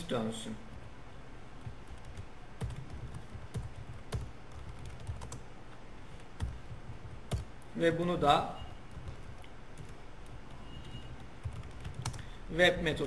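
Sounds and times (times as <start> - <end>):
typing on keyboard: 1.6 - 5.4, 6.2 - 7.5, 8.9 - 12.3.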